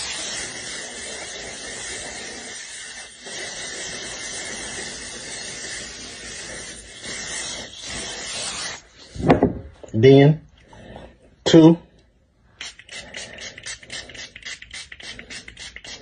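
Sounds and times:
hiss of cologne spray: 0.0 - 9.0, 12.6 - 16.0.

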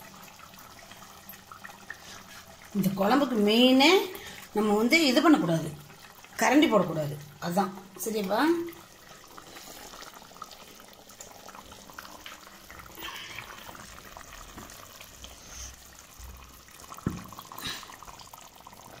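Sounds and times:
food sizzling and bubbling: 0.0 - 19.0.

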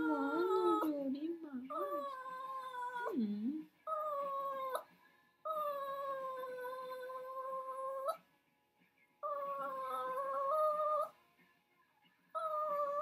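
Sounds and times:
dog howling and crying: 0.0 - 1.0, 1.7 - 3.2, 3.9 - 4.9, 5.5 - 8.2, 9.2 - 11.2, 12.4 - 13.0.

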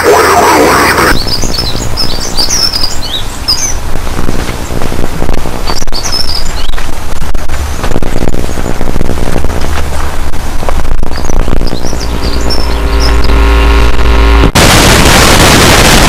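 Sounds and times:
steady low hum: 0.0 - 16.0
small birds twittering: 0.9 - 10.1, 10.8 - 13.8
loud harsh sound: 10.2 - 16.0.

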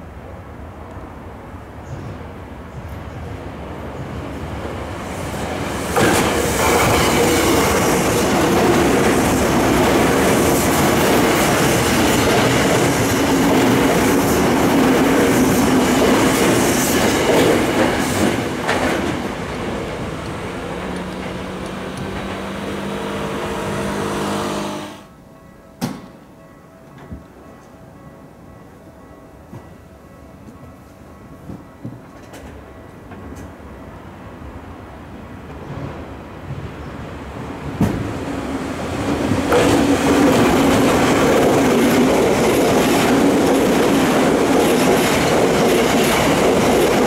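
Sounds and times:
electric train passing: 0.0 - 47.0
steady pitched tone: 22.6 - 25.2.

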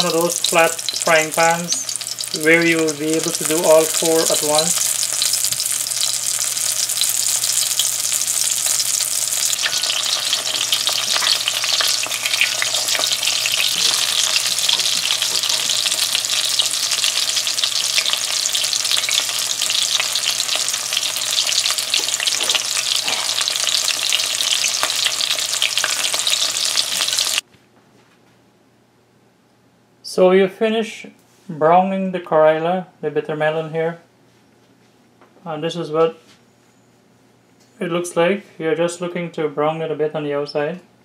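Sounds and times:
vegetables frying in hot oil: 0.0 - 27.4.

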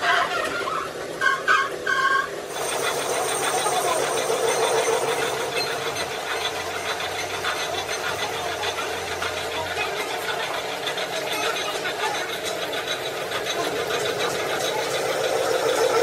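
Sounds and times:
machine chattering: 2.5 - 16.0.

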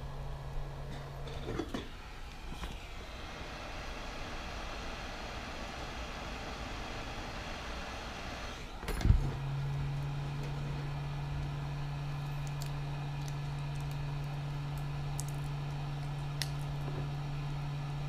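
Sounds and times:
hot air gun fan humming: 0.0 - 18.0.

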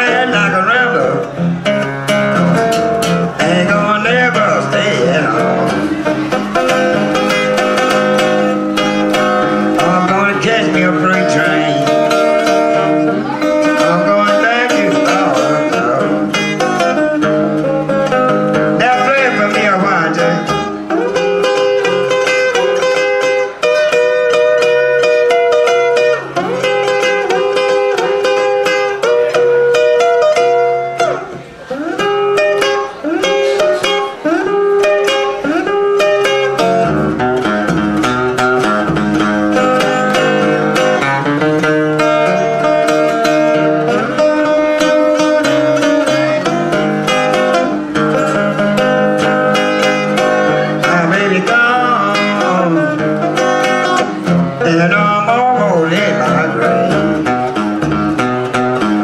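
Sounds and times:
acoustic guitar picking: 0.0 - 59.0
sliding lead melody: 0.0 - 59.0.

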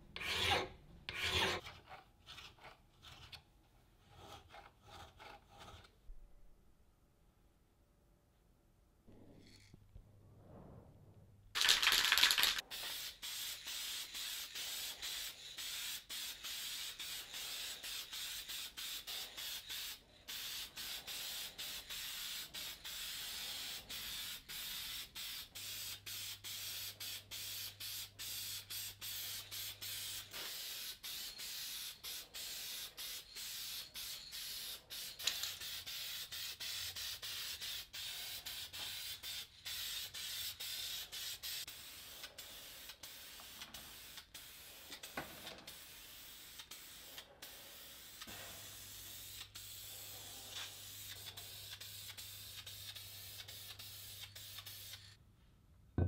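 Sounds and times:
aerosol spray can hissing: 11.6 - 55.2.

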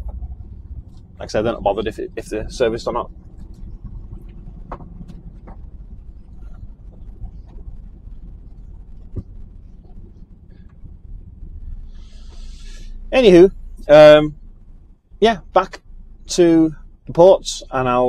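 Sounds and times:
light clicks and rattles: 0.0 - 11.7
lorry diesel engine rumble: 0.0 - 18.0.

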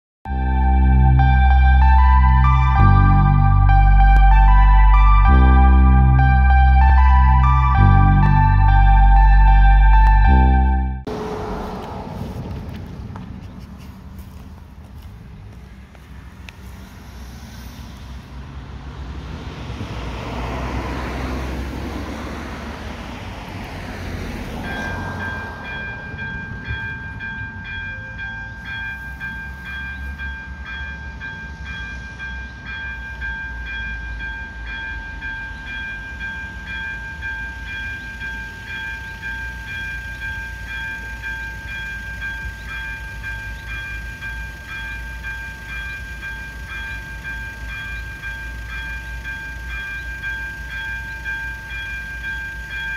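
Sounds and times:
vehicle passing: 0.4 - 30.2
level crossing warning signal ringing: 24.1 - 52.9.

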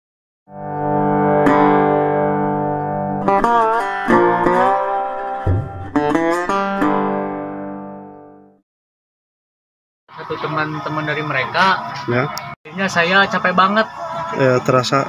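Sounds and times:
guitar jingle: 0.5 - 8.6.

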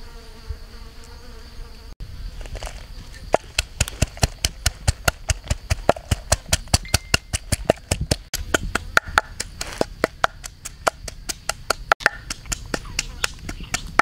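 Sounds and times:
rapid sharp knocking: 3.4 - 14.0.

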